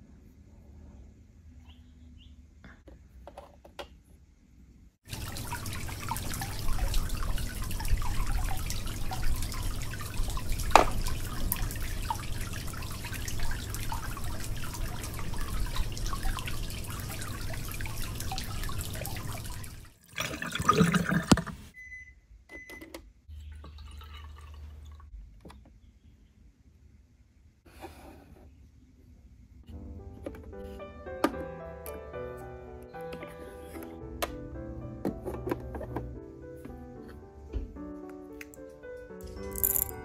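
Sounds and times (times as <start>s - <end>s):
low steady hum: 4.6s - 19.9s
water trickling into plastic sink: 5.1s - 21.7s, 23.4s - 25.1s.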